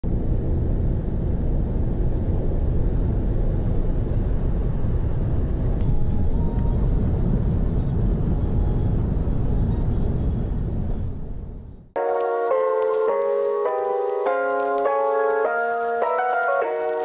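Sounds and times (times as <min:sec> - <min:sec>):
car cabin road rumble: 0:00.1 - 0:12.0.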